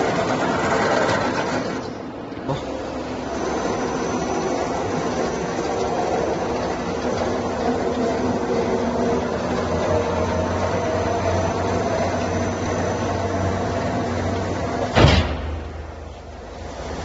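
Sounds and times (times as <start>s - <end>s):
steel rolling machine humming: 0.0s - 17.0s
loud metallic bang: 14.9s - 16.1s.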